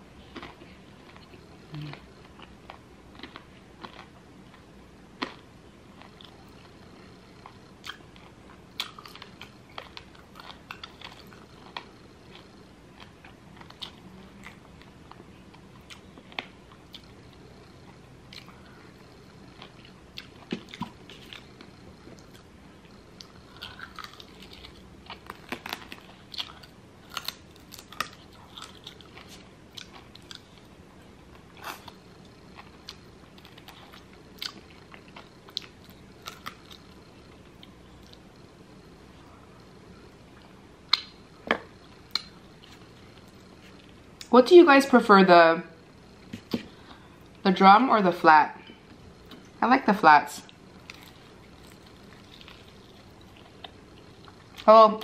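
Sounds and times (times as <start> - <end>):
chewing crisp chicken wings: 18.3 - 30.7.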